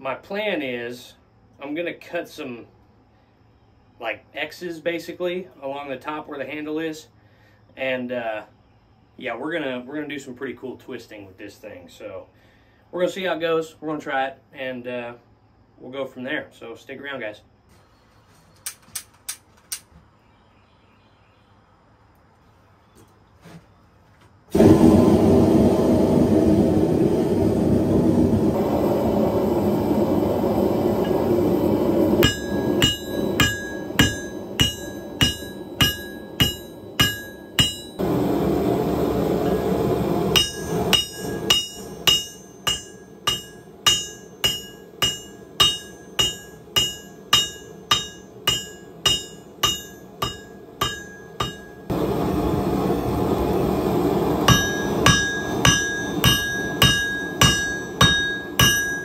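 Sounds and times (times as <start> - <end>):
forge burner roaring: 24.5 - 59.0
hammer striking metal on anvil: 32.2 - 38.1, 39.4 - 52.0, 54.4 - 59.0.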